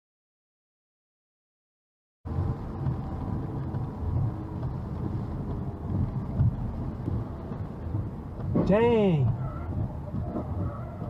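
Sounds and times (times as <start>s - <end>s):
car road noise rumble: 2.3s - 11.0s.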